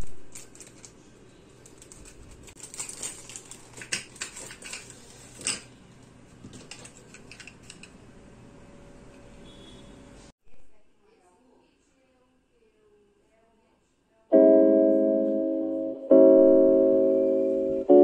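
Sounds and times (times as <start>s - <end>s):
small objects clicking and rustling: 0.0s - 5.7s.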